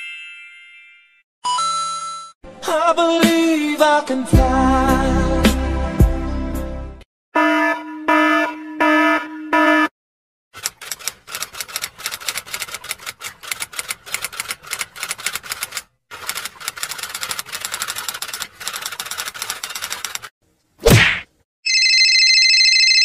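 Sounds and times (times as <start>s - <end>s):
typewriter keys clacking: 10.6s - 20.3s.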